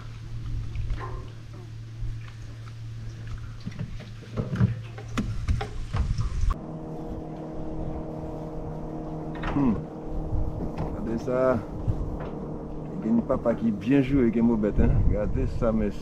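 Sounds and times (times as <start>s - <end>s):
low motor hum: 0.0s - 16.0s.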